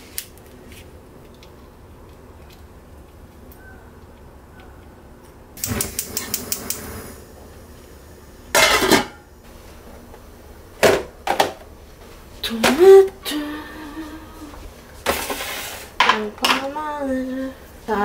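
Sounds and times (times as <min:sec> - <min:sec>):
gas stove igniter clicking: 0:05.6 - 0:07.0.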